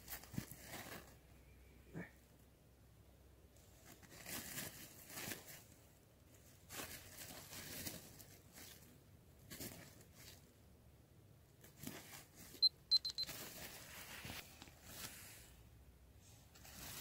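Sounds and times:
hand scraping dry soil: 11.6s - 15.6s, 16.3s - 17.0s.

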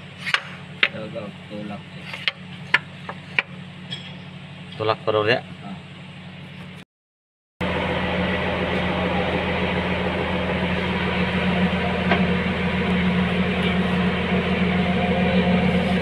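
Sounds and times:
mechanical hum with low drone: 0.0s - 6.8s, 7.6s - 16.0s.

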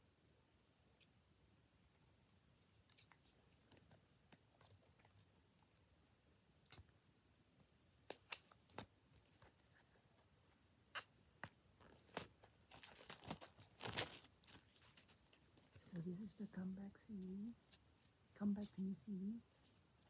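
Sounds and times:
plastic wrapper crinkling: 11.8s - 15.8s.

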